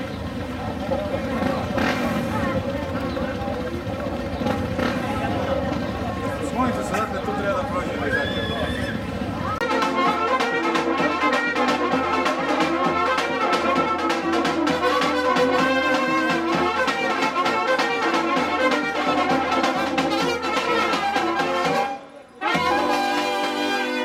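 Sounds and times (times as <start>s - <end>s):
steady drum beat: 0.0s - 24.0s
brass band playing: 6.3s - 24.0s.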